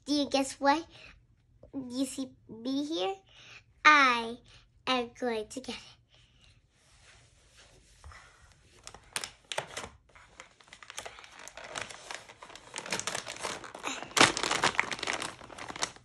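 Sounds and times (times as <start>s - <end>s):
plastic packaging crinkling: 8.8s - 16.0s.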